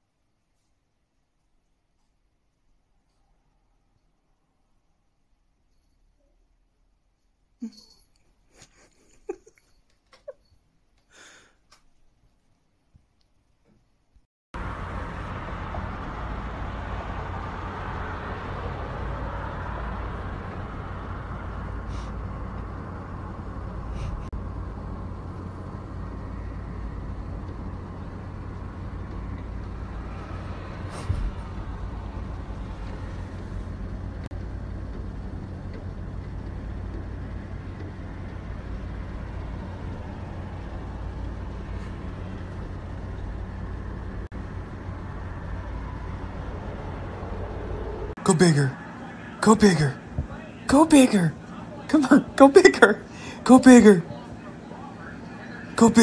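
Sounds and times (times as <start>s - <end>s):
low background rumble: 14.6s - 48.2s.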